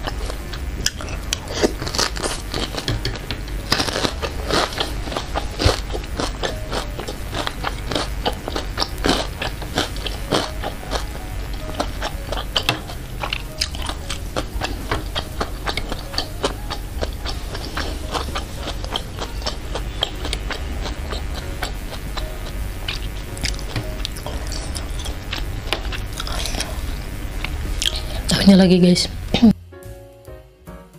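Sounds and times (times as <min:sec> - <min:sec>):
wet chewing mouth clicks: 0:00.0 - 0:22.3, 0:27.4 - 0:28.3.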